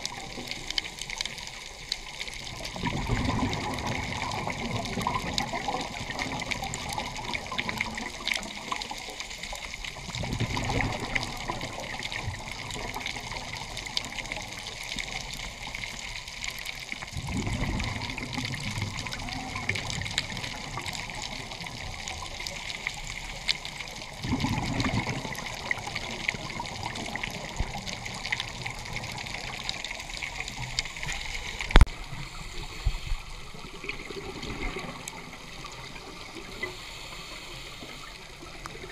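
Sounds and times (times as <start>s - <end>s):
crackle of tiny clicks: 0.0s - 32.1s, 37.8s - 38.9s
exhaled air bubbling underwater: 0.0s - 38.9s
steady hiss: 29.7s - 34.0s, 35.0s - 38.9s.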